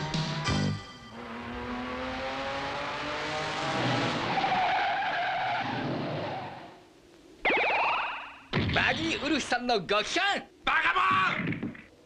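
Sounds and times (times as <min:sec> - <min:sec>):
cartoon truck engine revving: 0:00.0 - 0:04.9.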